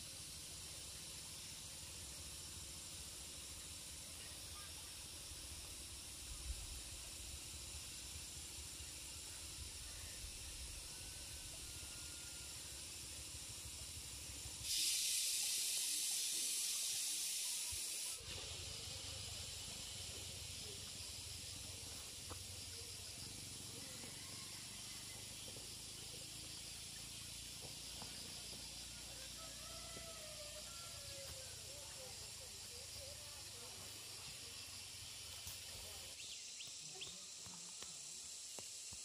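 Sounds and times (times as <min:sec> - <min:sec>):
loud hiss: 0:00.0 - 0:23.9
outdoor background hiss: 0:00.0 - 0:39.0.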